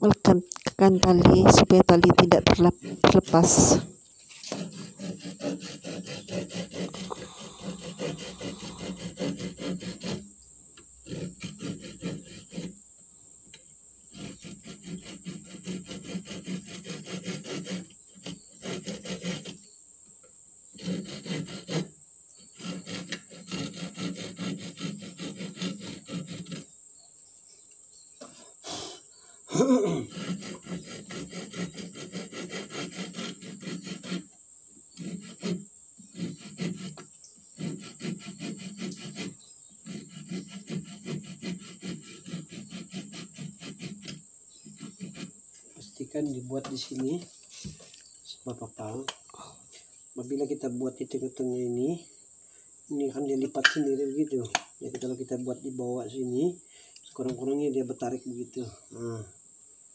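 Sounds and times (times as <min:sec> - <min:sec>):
hand saw cutting wood: 0:01.2 - 0:10.3, 0:11.0 - 0:12.8, 0:14.1 - 0:19.6, 0:20.7 - 0:21.9, 0:22.5 - 0:26.7, 0:29.9 - 0:34.3, 0:35.0 - 0:45.3.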